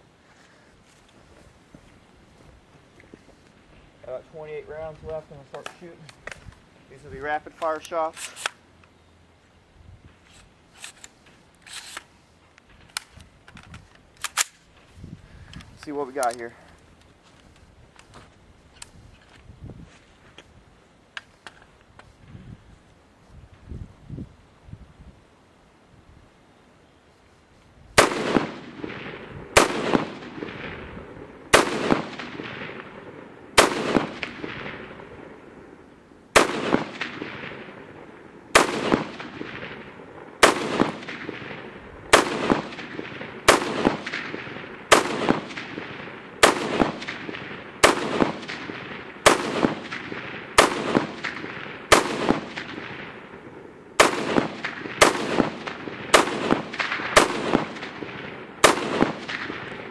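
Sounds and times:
rifle shots echoing: 28.0 - 59.9.

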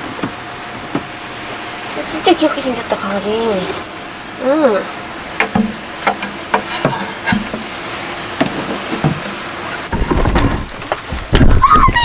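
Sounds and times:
low thumping and rumbling: 9.9 - 12.0.

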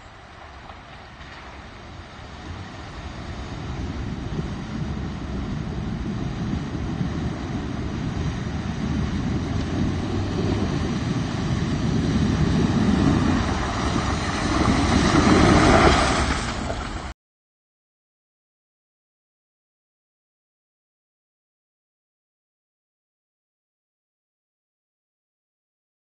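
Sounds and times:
truck engine: 0.0 - 17.2
water splashing from tires: 8.9 - 17.1.

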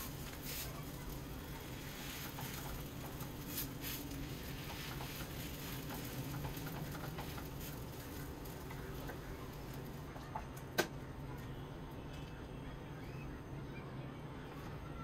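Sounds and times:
food sizzling in oil: 0.0 - 10.1.

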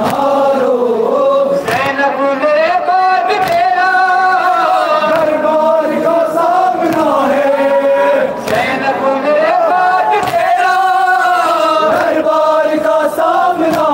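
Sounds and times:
chest-beating slaps: 0.0 - 0.4, 1.6 - 2.0, 3.4 - 3.8, 5.1 - 5.4, 6.8 - 7.3, 8.4 - 8.8, 10.2 - 10.6, 13.6 - 13.9
crowd of men chanting a lament: 0.0 - 13.9
lead reciter chanting: 0.0 - 13.9.

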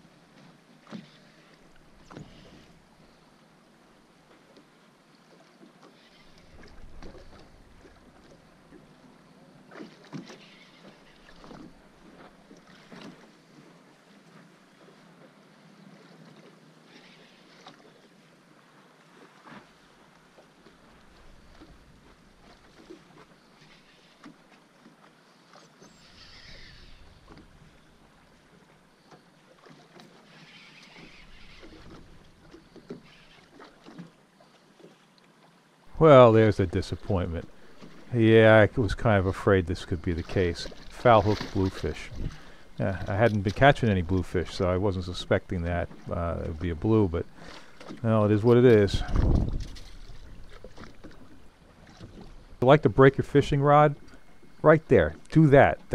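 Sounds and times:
water lapping around boat: 0.0 - 55.9
waves slapping against boat: 35.9 - 55.9
wind on microphone: 42.1 - 42.4, 48.8 - 50.6.

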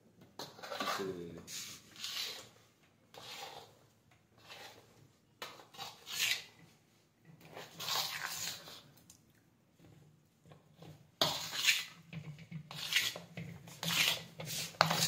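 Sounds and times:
metal spoon scraping brass bowl: 11.2 - 12.0, 12.7 - 15.0.

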